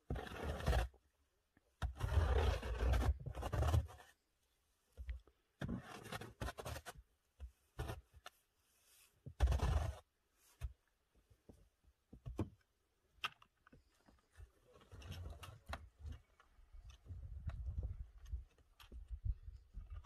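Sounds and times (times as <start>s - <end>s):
snow shovel scraping snow: 0.0s - 0.9s, 1.9s - 4.2s, 8.8s - 10.1s.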